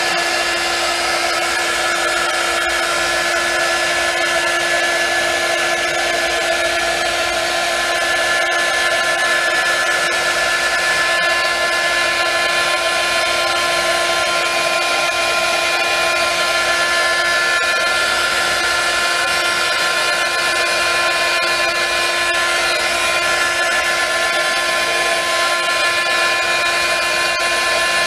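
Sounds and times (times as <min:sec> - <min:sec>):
heat gun blowing air: 0:00.0 - 0:28.0.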